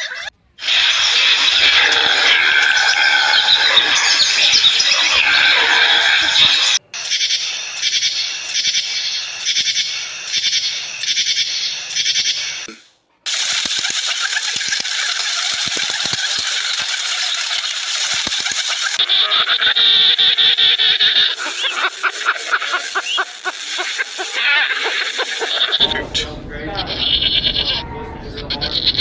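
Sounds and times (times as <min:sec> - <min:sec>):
grasshoppers stridulating: 0:00.6 - 0:12.7, 0:13.3 - 0:26.2
scattered clicks: 0:13.3 - 0:19.3.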